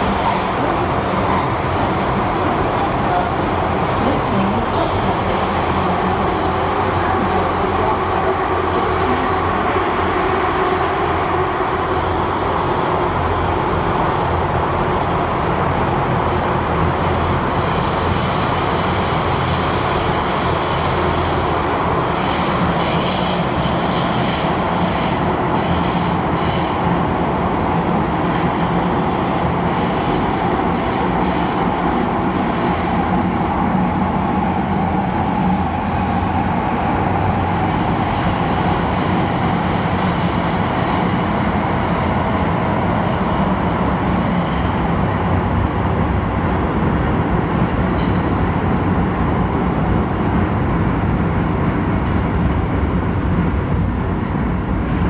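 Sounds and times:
wheels rumbling on rail: 0:00.0 - 0:55.0
high wheel squeal: 0:52.2 - 0:52.7.

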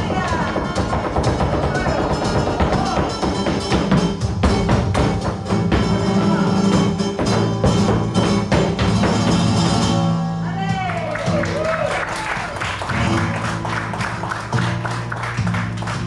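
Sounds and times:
flamenco guitar playing: 0:00.0 - 0:16.0
heel strikes on wooden board: 0:00.7 - 0:06.0.

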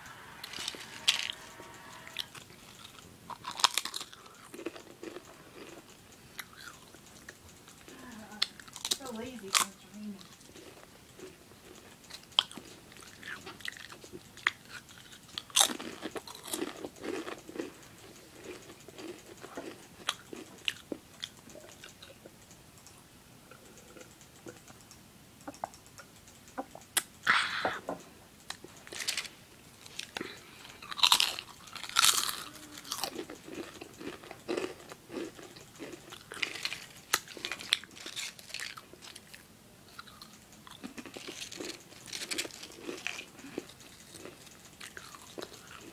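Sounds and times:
person chewing crisp apple: 0:00.0 - 0:24.9, 0:28.4 - 0:45.9
mouth clicks: 0:00.1 - 0:28.9.

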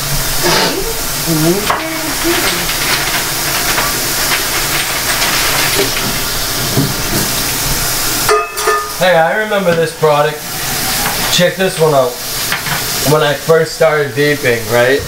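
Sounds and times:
water splashing over metal pot: 0:00.1 - 0:13.5
tap running into sink: 0:01.6 - 0:09.0, 0:10.9 - 0:13.0.

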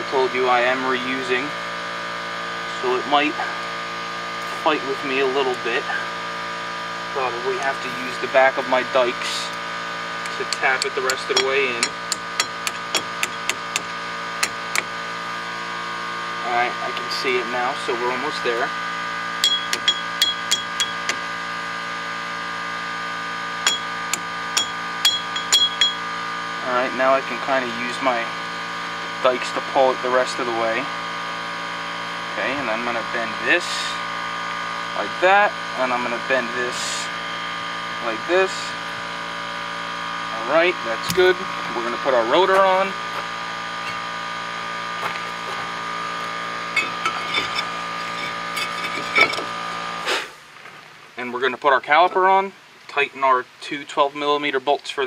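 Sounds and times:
steady hum: 0:00.0 - 0:50.4
metal clinks and knocks: 0:10.3 - 0:14.8, 0:19.4 - 0:21.2, 0:23.6 - 0:26.0, 0:46.8 - 0:49.5
metal tool tapping steel pin: 0:10.3 - 0:14.9, 0:19.4 - 0:21.2, 0:23.6 - 0:26.0.

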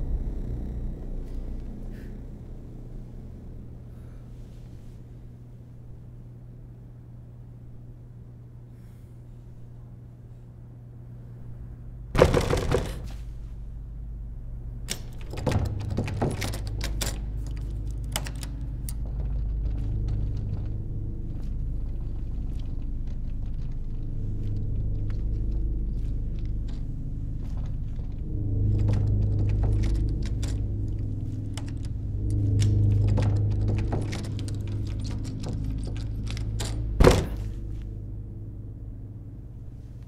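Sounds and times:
low rumbling drone: 0:00.0 - 0:40.0
knocks and clicks: 0:27.5 - 0:37.5.

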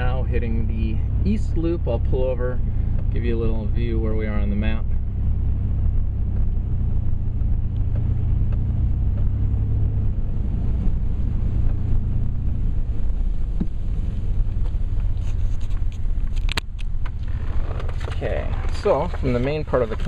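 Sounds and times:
car interior rumble: 0:00.0 - 0:20.0.

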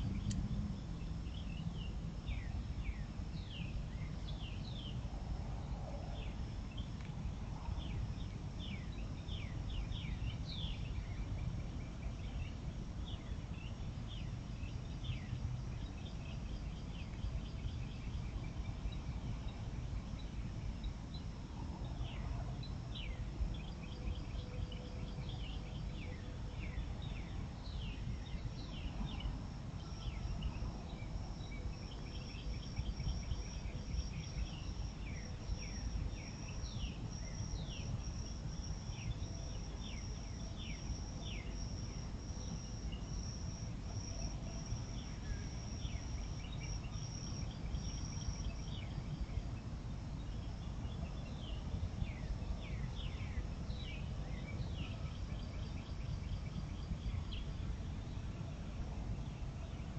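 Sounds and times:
steady low rumble: 0:00.0 - 0:59.9
pulsing insect chirping: 0:27.0 - 0:49.4.

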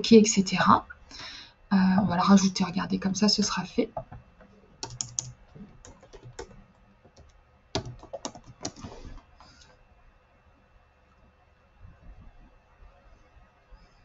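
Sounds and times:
typing on computer keyboard: 0:04.8 - 0:09.0.

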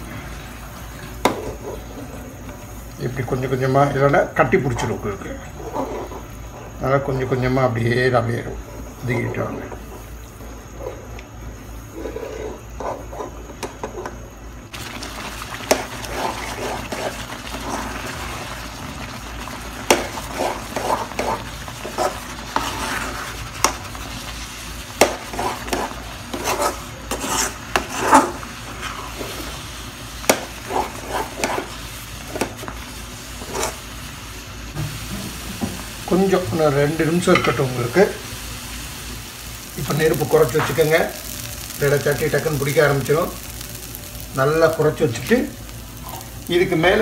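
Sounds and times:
food sizzling: 0:00.0 - 0:06.8, 0:08.6 - 0:47.0
spatula scraping pan: 0:11.9 - 0:14.1, 0:15.7 - 0:18.1, 0:19.9 - 0:24.0, 0:25.0 - 0:29.6, 0:30.2 - 0:32.7, 0:33.4 - 0:33.8.

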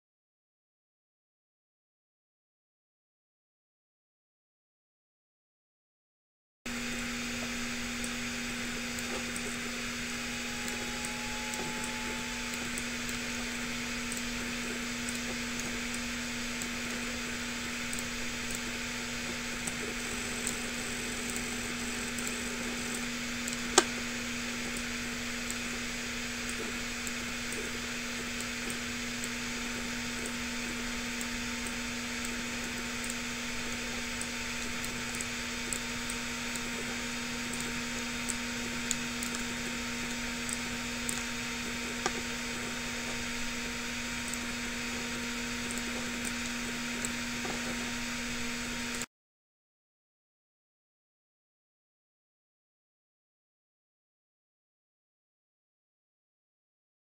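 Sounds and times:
background hum: 0:06.7 - 0:49.0
sharp click: 0:22.1 - 0:24.0.

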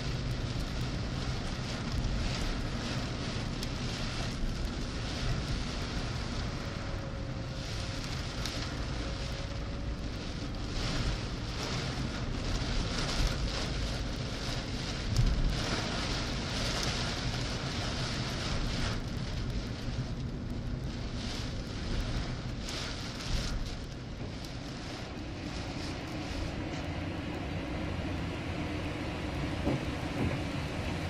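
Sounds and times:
car engine rumble: 0:00.0 - 0:31.0
heavy rain on windshield: 0:00.0 - 0:31.0
tyres on wet road: 0:00.0 - 0:31.0.

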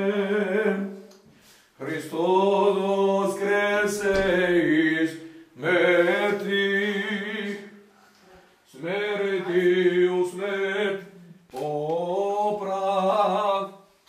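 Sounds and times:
man chanting prayer: 0:01.8 - 0:07.8, 0:08.7 - 0:13.8.

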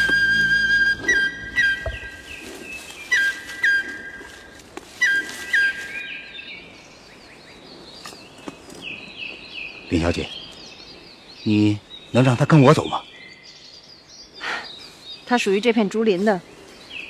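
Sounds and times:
flute playing high notes: 0:00.0 - 0:02.3, 0:03.1 - 0:06.1
faint bird chirps: 0:00.0 - 0:17.0.

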